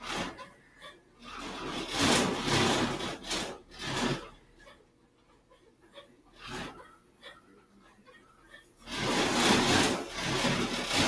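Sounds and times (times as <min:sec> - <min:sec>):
paper rubbing and scraping: 0:01.2 - 0:04.4, 0:08.8 - 0:11.0.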